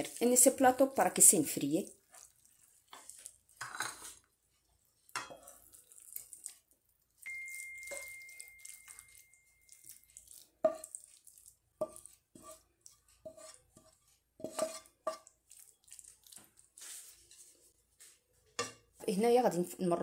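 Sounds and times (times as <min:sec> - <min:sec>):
wooden spoon scraping pan: 0:02.0 - 0:06.6, 0:09.9 - 0:19.1
thin high tone: 0:07.2 - 0:10.0
clink on ceramic plate: 0:07.3 - 0:09.4.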